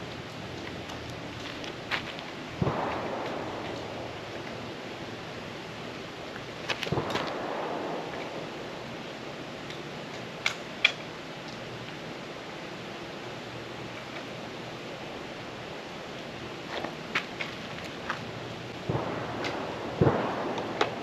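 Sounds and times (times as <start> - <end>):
steady outdoor hiss: 0.0 - 21.0
pistol shots with echo: 2.6 - 4.3, 18.9 - 21.0.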